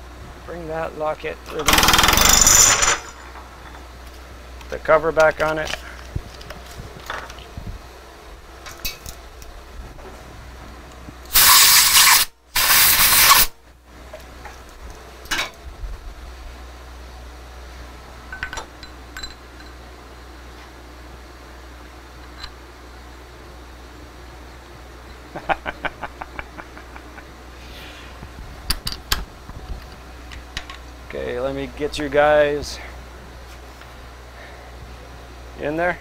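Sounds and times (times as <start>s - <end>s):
low shop hum: 0.0s - 36.0s
metal tools clinking: 1.5s - 3.9s
pressurised spray hissing: 11.3s - 13.5s.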